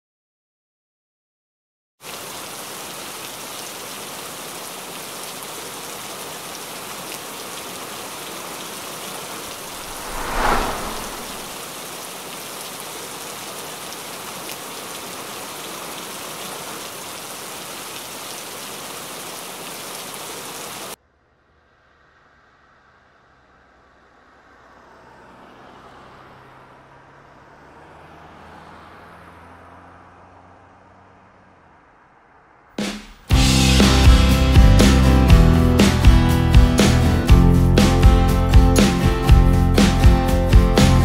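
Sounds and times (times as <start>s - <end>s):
heavy rain: 2.0s - 21.0s.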